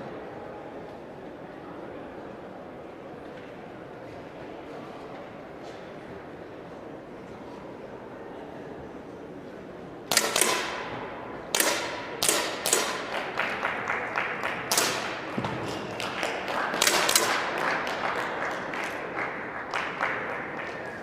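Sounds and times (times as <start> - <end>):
air pistol shots cracking: 10.1 - 13.3, 14.7 - 15.3, 16.8 - 17.5.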